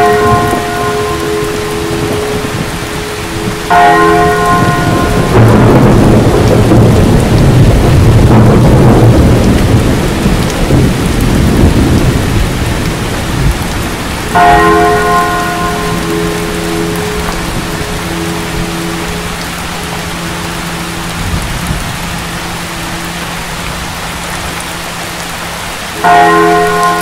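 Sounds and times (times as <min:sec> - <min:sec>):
thunder rolling: 0:00.0 - 0:22.6
steady rain: 0:00.0 - 0:27.0.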